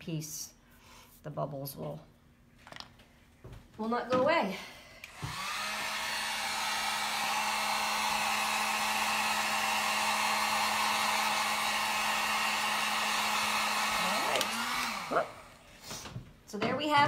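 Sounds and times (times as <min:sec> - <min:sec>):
hot-air blower running: 0:05.0 - 0:16.2.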